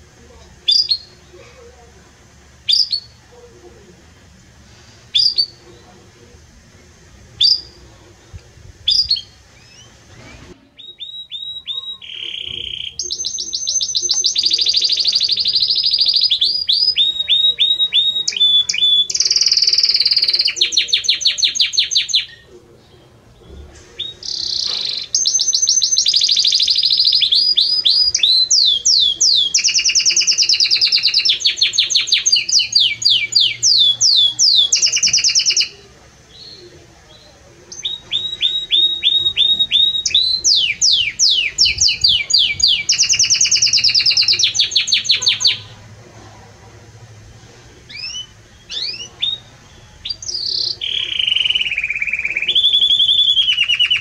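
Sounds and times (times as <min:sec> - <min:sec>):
canary singing trills: 0:00.0 - 0:03.8, 0:05.1 - 0:06.3, 0:07.3 - 0:46.0, 0:47.8 - 0:54.0.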